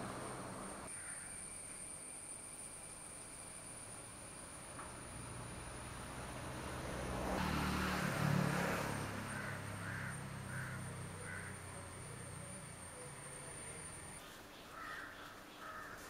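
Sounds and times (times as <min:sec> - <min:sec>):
motor vehicle passing: 0:00.0 - 0:00.9, 0:05.0 - 0:14.2
crow cawing: 0:00.9 - 0:01.3, 0:09.3 - 0:12.4, 0:14.7 - 0:16.0.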